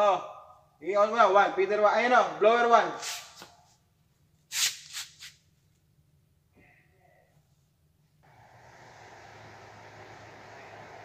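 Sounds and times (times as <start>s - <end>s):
ventilation blower humming: 8.2s - 11.0s.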